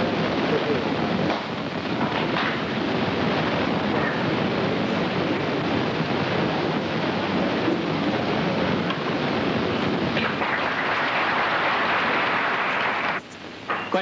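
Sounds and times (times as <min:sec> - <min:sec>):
audience applauding: 0:10.2 - 0:13.2.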